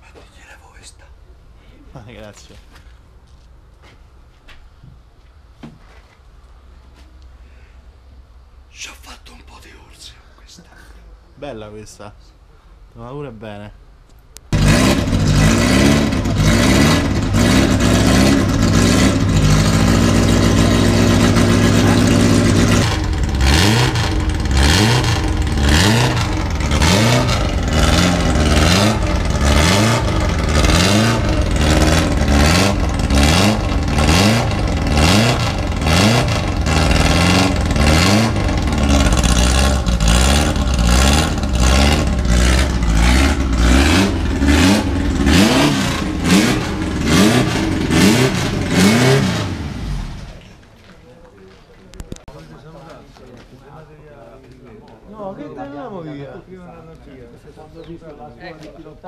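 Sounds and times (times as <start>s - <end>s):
sports car engine revving: 14.5s - 50.5s.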